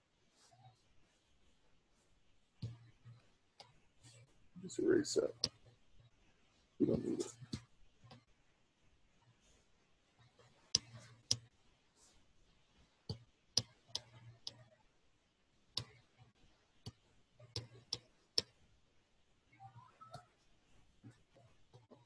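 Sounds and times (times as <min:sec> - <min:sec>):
computer mouse clicks: 0:10.7 - 0:11.5, 0:13.1 - 0:14.6.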